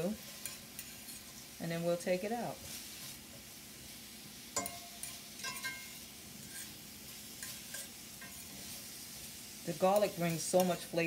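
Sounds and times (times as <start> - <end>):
vegetables sizzling in a skillet: 0.0 - 11.0
fork clinking against pan: 4.6 - 6.7, 7.4 - 8.4.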